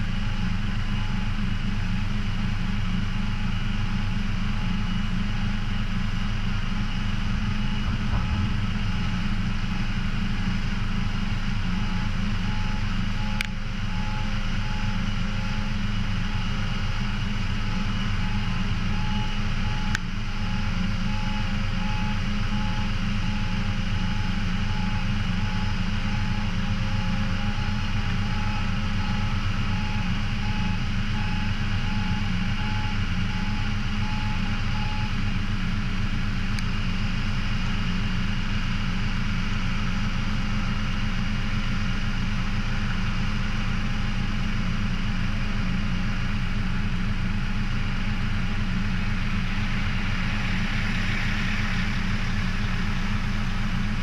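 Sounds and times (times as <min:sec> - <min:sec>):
heavy engine idling: 0:00.0 - 0:54.0
fast pulsing beep alarm: 0:00.2 - 0:02.0, 0:03.4 - 0:35.2.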